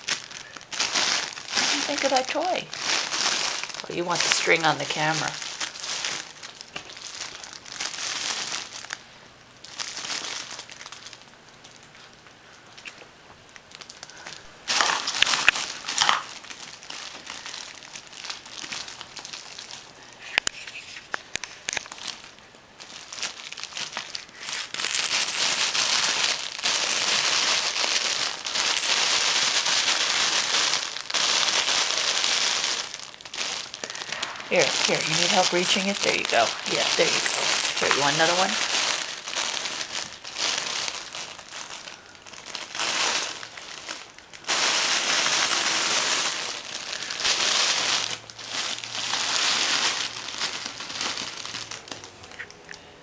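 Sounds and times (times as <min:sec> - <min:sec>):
fabric tunnel crinkling: 0:00.0 - 0:09.0, 0:21.8 - 0:52.6.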